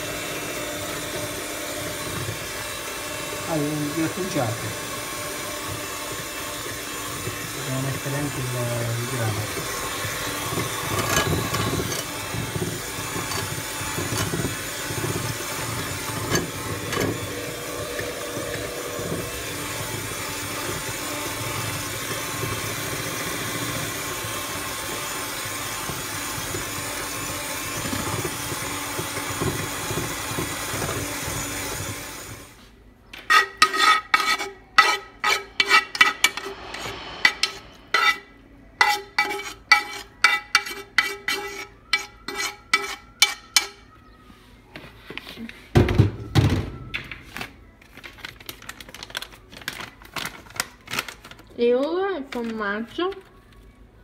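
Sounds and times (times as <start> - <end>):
electric hand mixer running: 0.0 - 32.6
utensil scraping a frying pan: 5.0 - 24.2, 33.2 - 43.9.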